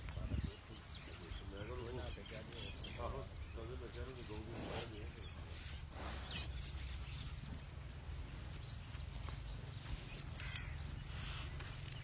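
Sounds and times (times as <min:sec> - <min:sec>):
short bird calls: 0:08.6 - 0:12.0.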